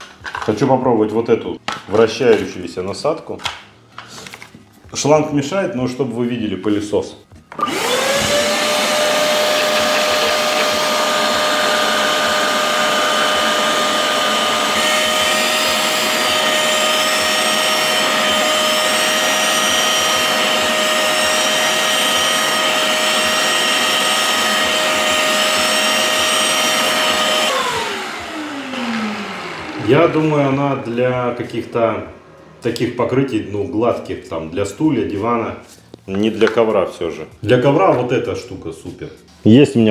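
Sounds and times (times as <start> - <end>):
wet vacuum motor whining: 7.5 - 32.8.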